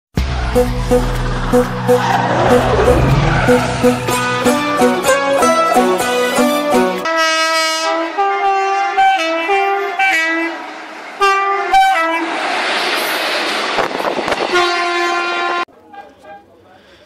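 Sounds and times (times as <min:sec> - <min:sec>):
train coaches rushing past: 0:00.2 - 0:06.3, 0:09.8 - 0:16.8
train horn two notes: 0:00.6 - 0:12.3, 0:14.5 - 0:16.4.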